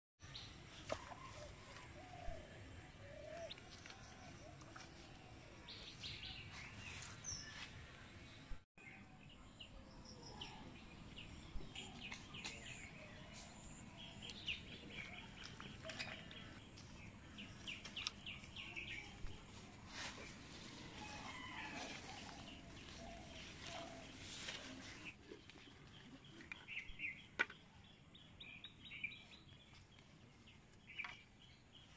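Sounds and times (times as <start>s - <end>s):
small birds chirping: 8.9s - 31.9s.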